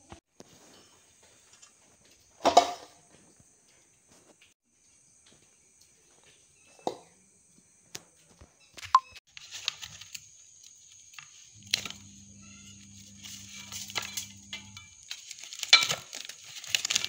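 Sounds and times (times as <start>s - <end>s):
leaf crinkling and tearing: 11.6s - 17.0s.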